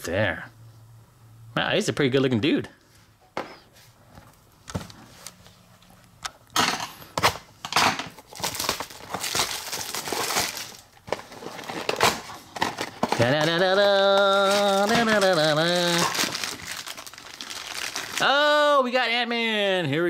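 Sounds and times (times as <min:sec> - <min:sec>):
plastic wrapping crinkling: 0:08.0 - 0:18.4.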